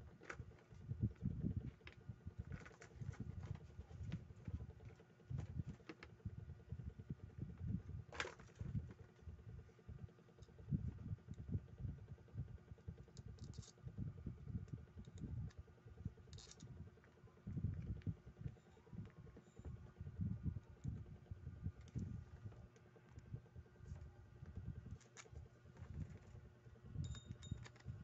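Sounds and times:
low uneven rumble: 0:00.0 - 0:28.0
small metal parts clicking: 0:13.2 - 0:13.8, 0:16.3 - 0:16.7.

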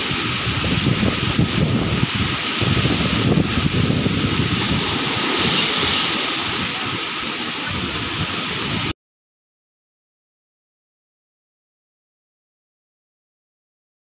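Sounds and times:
heavy surf breaking: 0:00.0 - 0:09.0
wind gusting over microphone: 0:00.0 - 0:09.0.

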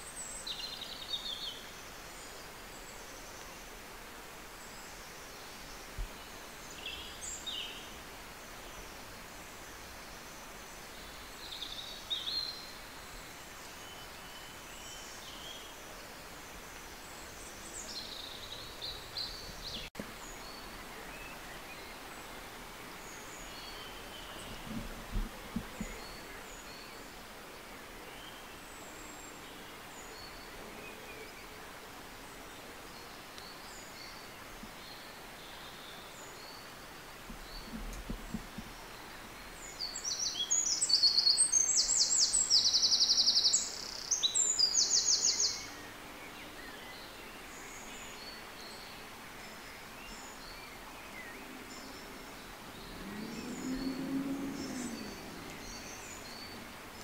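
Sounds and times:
steady hiss: 0:00.0 - 0:57.0.

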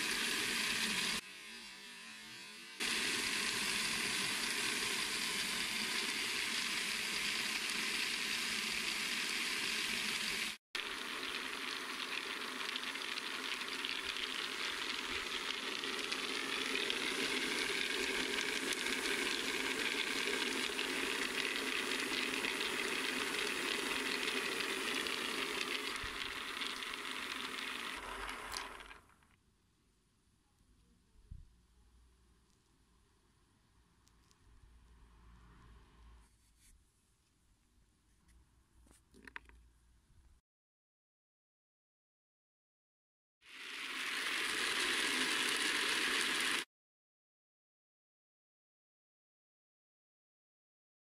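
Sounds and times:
pellets rattling in rotating bowl: 0:10.8 - 0:29.2, 0:43.6 - 0:46.6.

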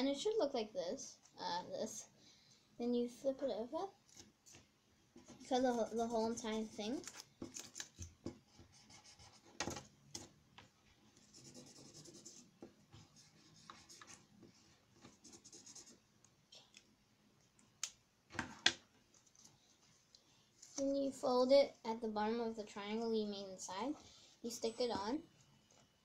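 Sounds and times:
marker scratching on paper: 0:08.3 - 0:09.8, 0:11.2 - 0:14.3, 0:15.0 - 0:16.0.

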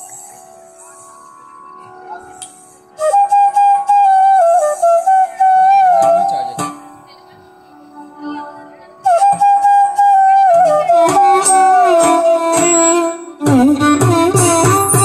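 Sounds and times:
bamboo flute melody: 0:00.0 - 0:15.0
lower melodic instrument: 0:00.0 - 0:15.0
hand drum strokes: 0:10.6 - 0:15.0.

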